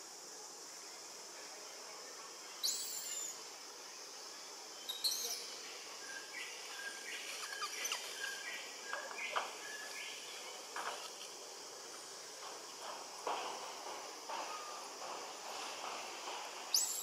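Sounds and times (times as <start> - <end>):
insect hiss: 0.0 - 17.0
birds whistling and chirping: 4.9 - 5.5.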